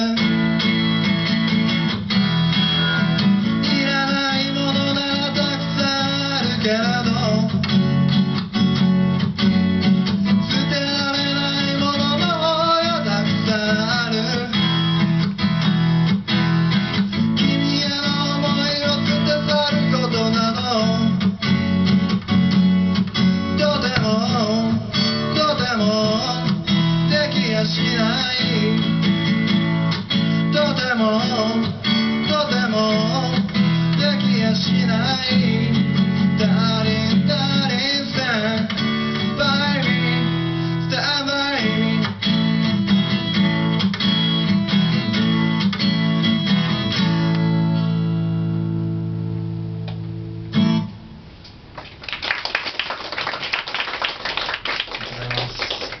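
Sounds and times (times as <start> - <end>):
man singing: 0.0 - 0.8, 2.8 - 8.0, 10.2 - 14.9, 17.1 - 21.5, 23.4 - 42.7
acoustic guitar strumming: 0.0 - 51.7
audience clapping: 51.7 - 56.0.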